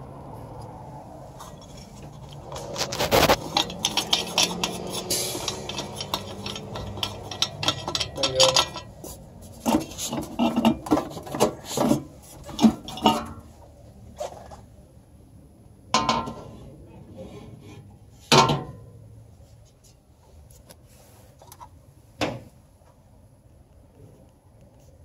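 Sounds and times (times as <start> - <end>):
wing nut unscrewing with scraping: 1.4 - 13.4
metal clinks and knocks: 1.4 - 13.5.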